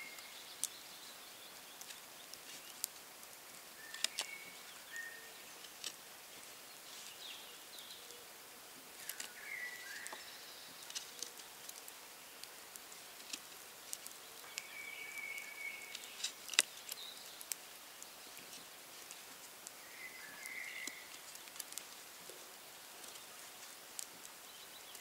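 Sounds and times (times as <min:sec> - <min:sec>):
birds calling: 0:03.7 - 0:08.4, 0:09.0 - 0:11.6, 0:14.0 - 0:18.8, 0:19.7 - 0:21.8.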